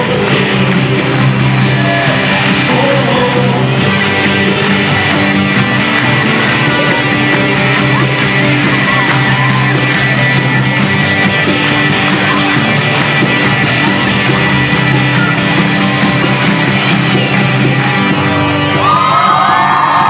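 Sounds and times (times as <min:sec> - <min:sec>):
people singing: 0:00.0 - 0:05.1
strummed acoustic guitars: 0:00.0 - 0:20.0.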